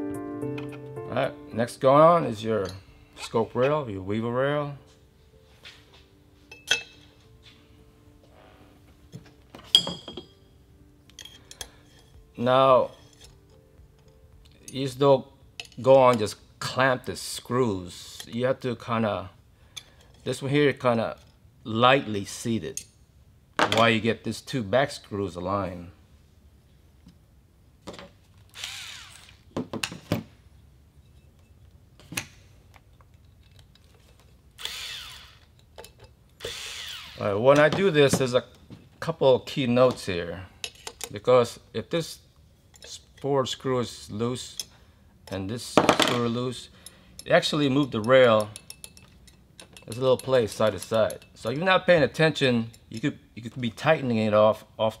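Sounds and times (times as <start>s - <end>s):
electric screwdriver whirring: 28.5s - 29.4s, 34.6s - 35.5s, 36.4s - 37.2s
clicks and knocks of parts handled: 31.4s - 34.4s, 35.4s - 36.4s, 40.6s - 41.2s.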